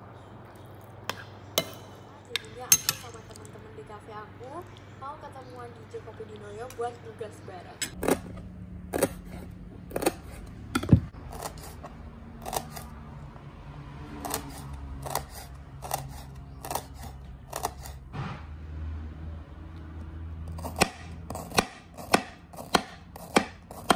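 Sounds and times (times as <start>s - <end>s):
faint low hum: 0.0s - 12.6s
knife chopping on wooden board: 20.6s - 23.9s.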